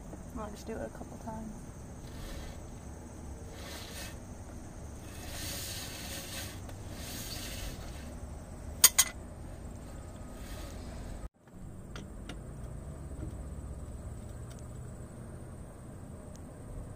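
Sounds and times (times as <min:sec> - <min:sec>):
brake drum rasping and rubbing: 0:01.0 - 0:14.4.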